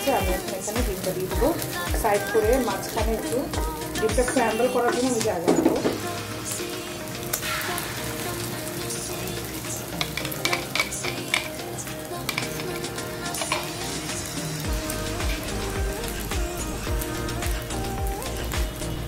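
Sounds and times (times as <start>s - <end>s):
background music: 0.0s - 19.0s
egg sizzling in a pan: 0.0s - 19.0s
metal spoon scraping a pan: 10.0s - 11.6s.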